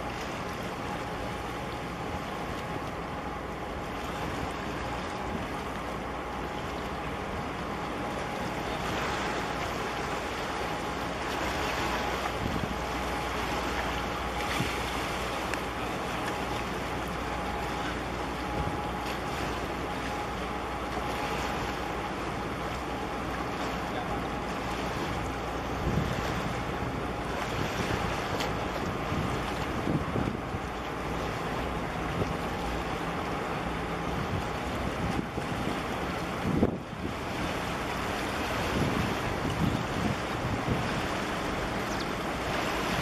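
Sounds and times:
faint steady hum: 0.0 - 43.0
wind on microphone: 12.2 - 12.9, 25.6 - 26.7, 27.4 - 30.8, 34.0 - 37.7, 38.4 - 43.0.

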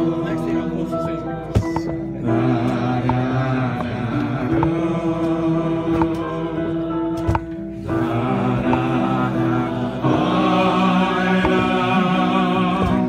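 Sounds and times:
man singing slow melody: 8.3 - 13.0.

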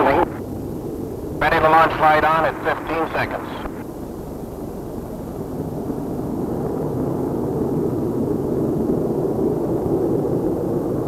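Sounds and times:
jet engines and rushing air roar: 0.0 - 11.0.

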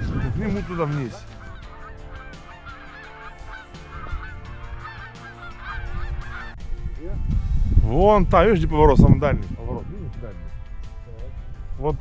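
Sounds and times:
geese honking: 0.0 - 6.6.

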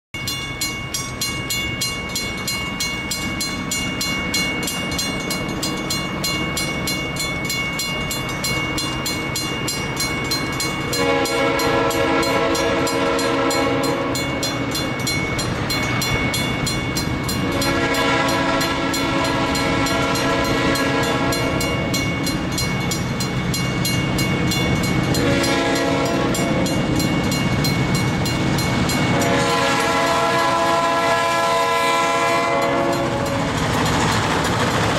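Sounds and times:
crossing bells ringing: 0.2 - 34.7
locomotive air horn blasts: 10.9 - 14.4, 17.4 - 21.9, 25.2 - 26.8, 29.1 - 33.6.

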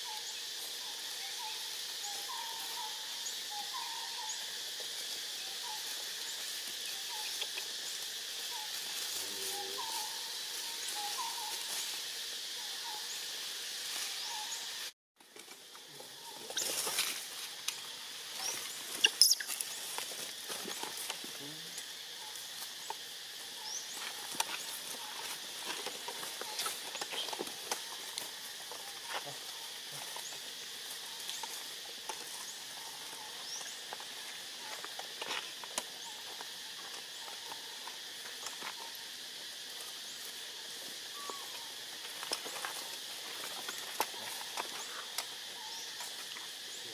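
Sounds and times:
forest ambience hiss: 0.0 - 46.9
monkeys rustling dry leaves: 4.4 - 46.9
monkeys squeaking: 18.4 - 19.8.

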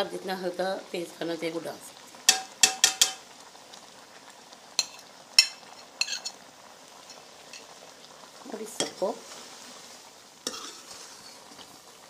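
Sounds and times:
faint simmering sizzle: 0.0 - 12.0
metal ladle clinking on pot: 2.3 - 3.2.

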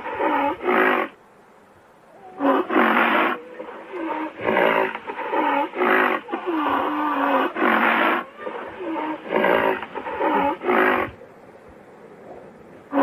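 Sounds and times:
rhinoceros calling: 0.0 - 1.2, 2.2 - 11.2.

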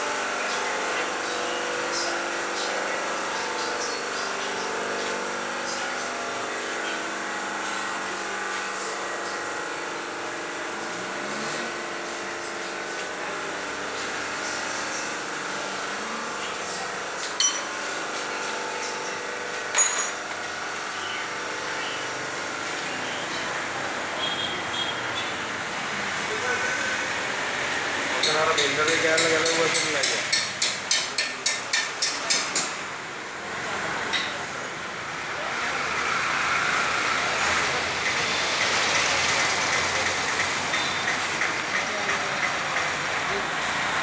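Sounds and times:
mechanical hum with high whine: 0.0 - 44.0
metallic tool clinks: 17.4 - 17.7, 19.8 - 20.2.

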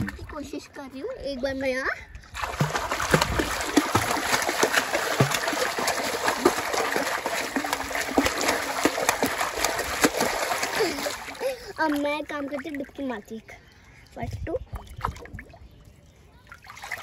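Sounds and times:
child splashing in water: 2.4 - 13.2, 16.5 - 17.0.

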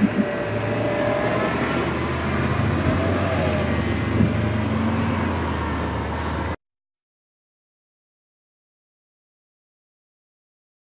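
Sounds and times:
vehicles driving by: 0.0 - 6.6.

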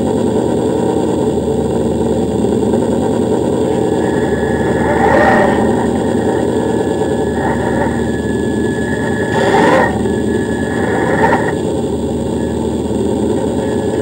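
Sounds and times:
model car motor whine and rumble: 0.0 - 14.0
bumps: 3.3 - 12.6.

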